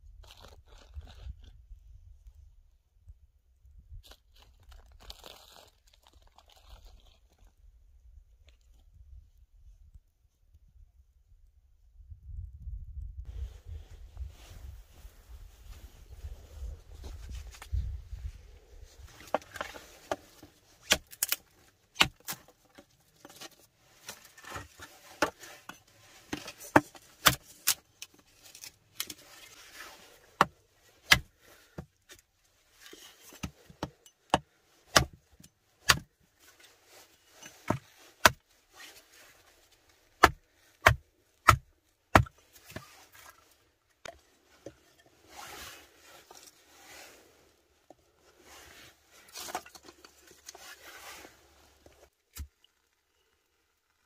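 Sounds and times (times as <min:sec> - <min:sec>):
rustle of sticks and pine needles: 0:04.0 - 0:07.6, 0:35.7 - 0:54.0
hatchet chopping wood: 0:26.7 - 0:27.4, 0:33.8 - 0:35.2, 0:40.2 - 0:42.3.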